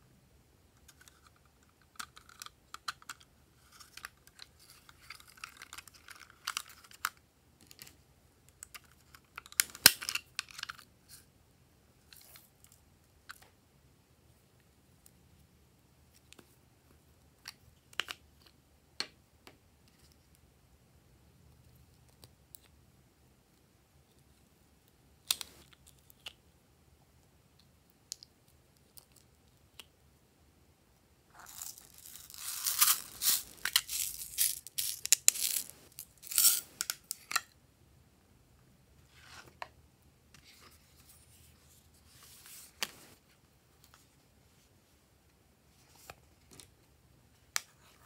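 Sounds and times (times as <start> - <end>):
plastic packaging tearing and crinkling: 31.4 - 37.4.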